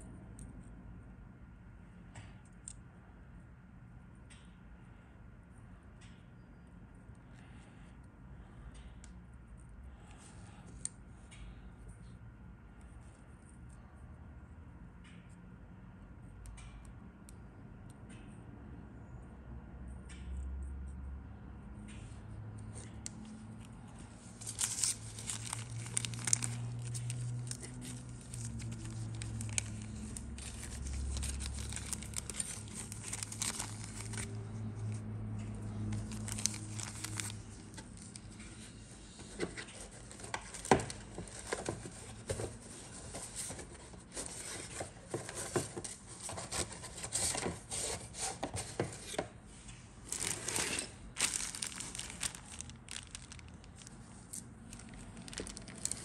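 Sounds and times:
plastic bag crinkling: 24.3 - 35.0, 35.8 - 38.3, 39.8 - 49.2, 50.0 - 56.0.

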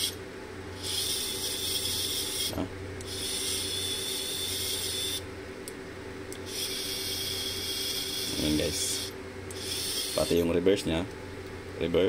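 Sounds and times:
surgical drill motor whirring: 0.0 - 5.2, 6.4 - 10.6.

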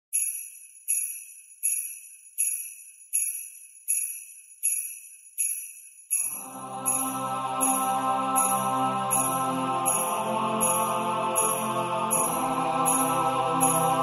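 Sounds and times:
jingle bells shaken: 0.1 - 14.0
music: 6.2 - 14.0.

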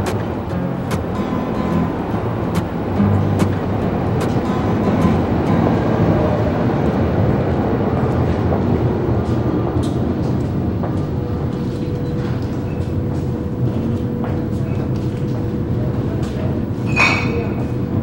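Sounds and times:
level hum: 0.0 - 7.9
underground train rumbling: 0.0 - 18.0.

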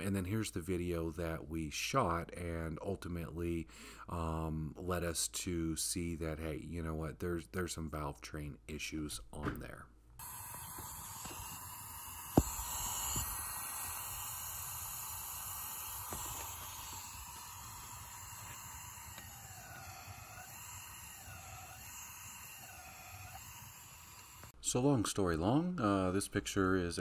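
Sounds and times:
compressed air hissing: 10.2 - 24.6.

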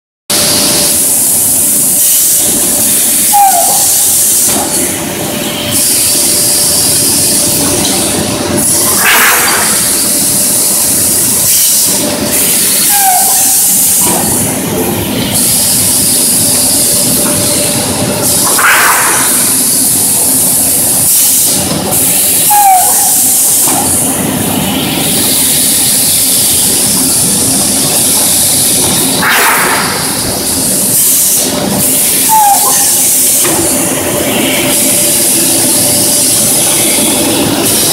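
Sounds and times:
grinding machine hiss: 0.3 - 37.9
short squeal: 3.1 - 4.5, 9.0 - 10.0, 11.5 - 14.4, 21.3 - 23.7, 31.2 - 33.4.

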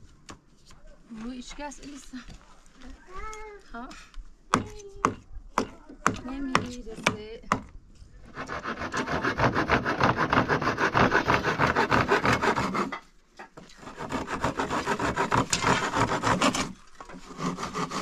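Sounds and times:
hand saw cutting wood: 8.3 - 13.0, 13.7 - 18.0.

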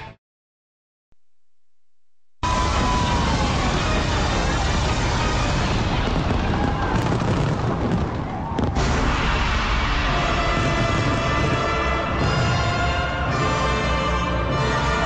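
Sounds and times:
music: 0.0 - 0.2, 2.4 - 7.2, 8.7 - 15.0
fireworks bangs and crackles: 2.4 - 12.9.

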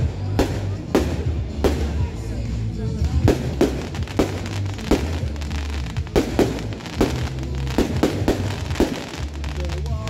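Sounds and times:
fireworks bangs: 3.0 - 10.0.

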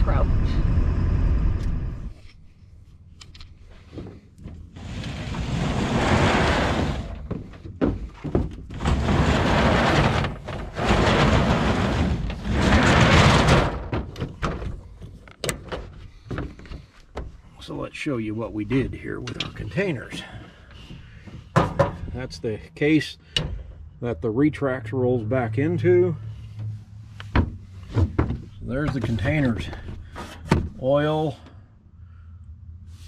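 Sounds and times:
truck bed cover sliding on rails: 3.8 - 16.0.

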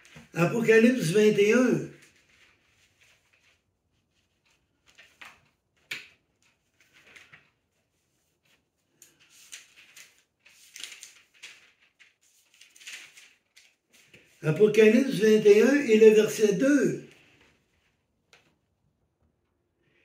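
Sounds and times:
book pages turning: 0.0 - 15.8.

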